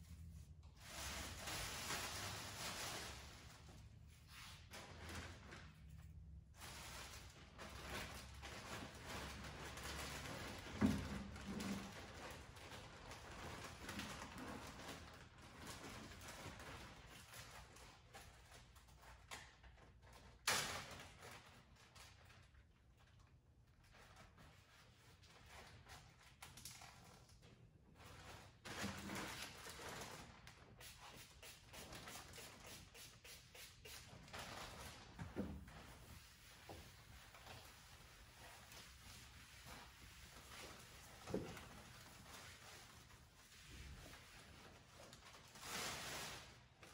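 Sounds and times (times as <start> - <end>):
plastic bags rustling: 0.2 - 5.8, 6.6 - 17.2, 34.1 - 46.9.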